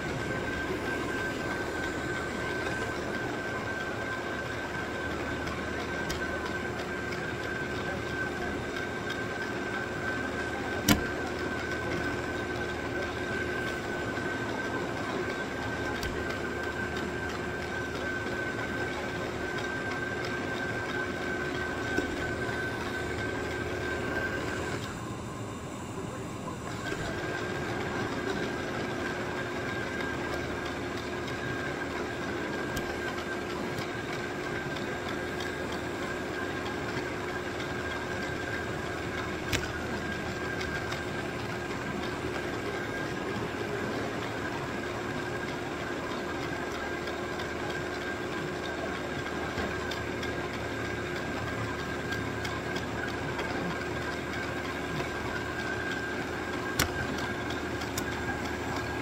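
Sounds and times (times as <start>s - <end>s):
robot vacuum whirring: 10.7s - 11.2s, 38.1s - 41.1s, 55.0s - 59.0s.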